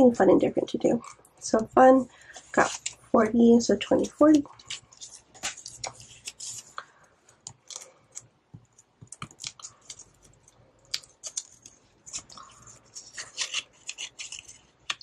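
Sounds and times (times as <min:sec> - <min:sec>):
paper and plastic rustling: 0:01.9 - 0:03.1, 0:03.8 - 0:08.3, 0:11.2 - 0:15.0.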